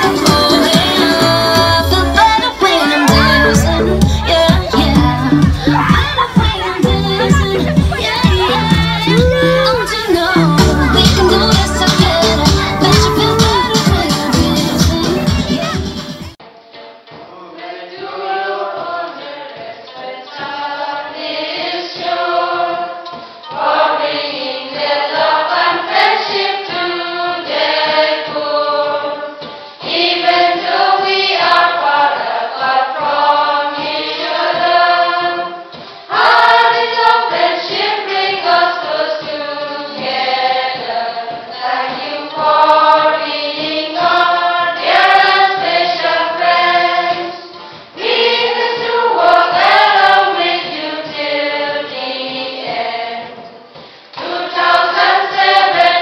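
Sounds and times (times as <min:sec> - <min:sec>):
choir singing a hymn: 0:00.0 - 0:15.8, 0:17.3 - 0:56.0.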